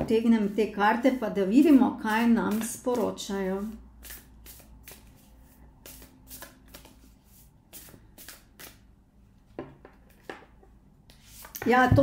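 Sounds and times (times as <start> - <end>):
cards being shuffled: 4.0 - 8.8.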